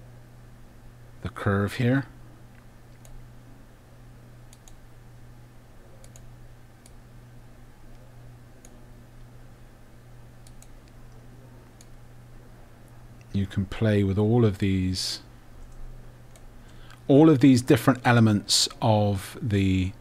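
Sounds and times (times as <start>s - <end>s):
computer mouse clicks: 2.6s - 3.2s, 4.5s - 4.8s, 6.0s - 7.0s, 10.4s - 12.0s, 15.6s - 16.9s.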